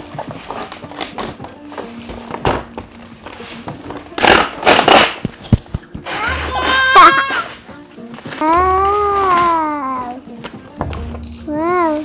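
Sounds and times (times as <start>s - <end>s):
faint background music: 0.0s - 12.0s
plastic wrapping crinkling: 7.4s - 10.2s.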